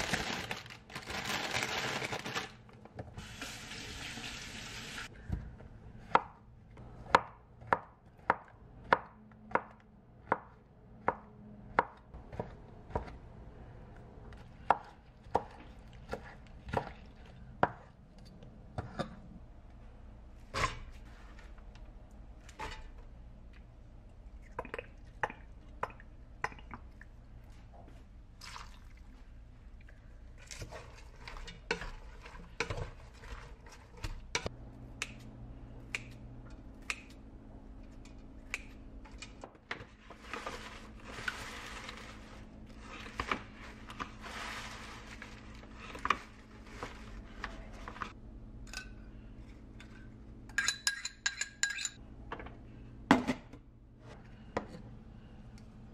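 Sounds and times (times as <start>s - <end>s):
spoon clinking ceramic bowl: 50.5s - 52.0s.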